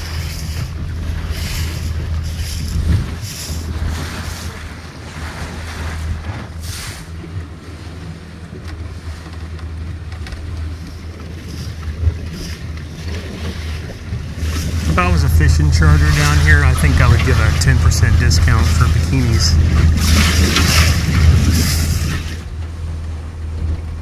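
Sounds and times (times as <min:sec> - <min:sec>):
wind noise on microphone: 0:00.0 - 0:04.6, 0:18.3 - 0:22.6
boat motor humming: 0:00.0 - 0:24.0
water wash: 0:00.0 - 0:24.0.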